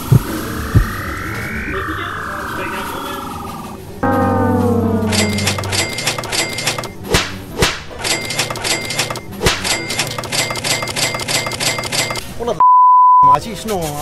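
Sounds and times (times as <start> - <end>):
fast electronic beat: 0.0 - 1.7
short high beeping notes: 4.0 - 7.1.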